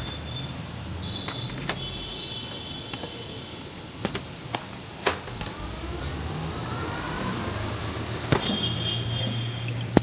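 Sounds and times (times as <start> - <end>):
low hum: 5.0 - 9.9.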